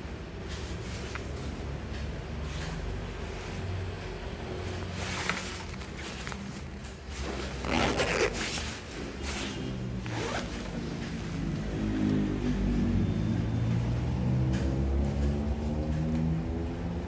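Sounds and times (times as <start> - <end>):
zipper rasping: 5.2 - 10.8.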